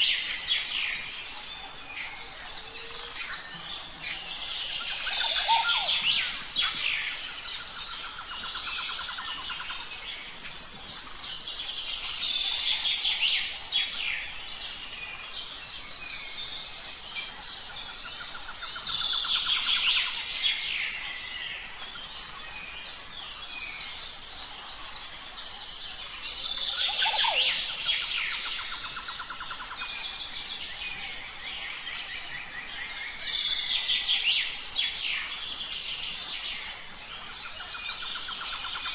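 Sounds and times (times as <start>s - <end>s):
birds chirping and singing: 0.0s - 38.9s.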